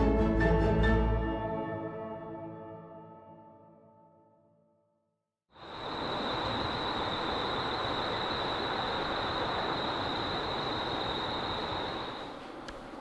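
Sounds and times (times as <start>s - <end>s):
outdoor background noise: 5.5s - 13.0s
high-pitched whine: 5.6s - 12.4s.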